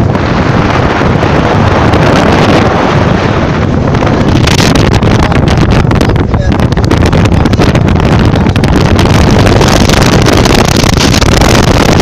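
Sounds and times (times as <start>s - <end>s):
car rumbling on road: 0.0s - 12.0s
wind buffeting microphone: 0.0s - 12.0s.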